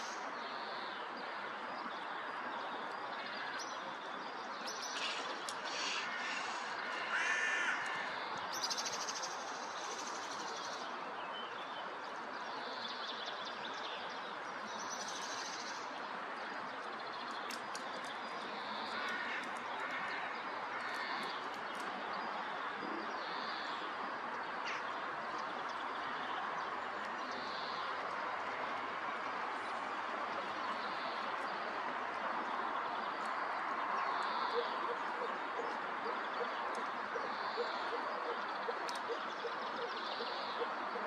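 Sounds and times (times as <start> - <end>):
outdoor background hiss: 0.0 - 40.9
faint sharp clicks: 4.6 - 5.7, 16.8 - 20.1, 38.8 - 39.1.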